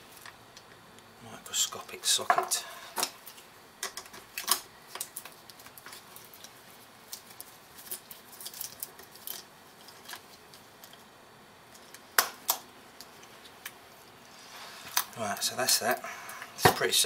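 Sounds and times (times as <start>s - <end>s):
small metal parts handled: 7.1s - 11.0s.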